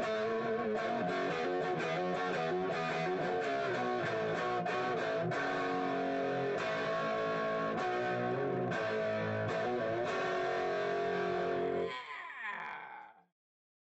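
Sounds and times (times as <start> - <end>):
guitar music: 0.0 - 11.9.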